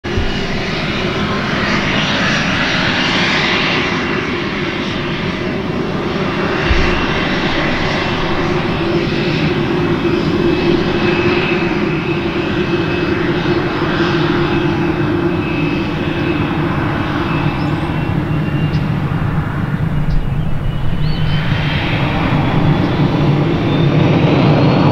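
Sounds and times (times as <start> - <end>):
jet engine whine with rushing hiss: 0.0 - 24.9
low thump: 0.1 - 2.0, 6.6 - 12.0.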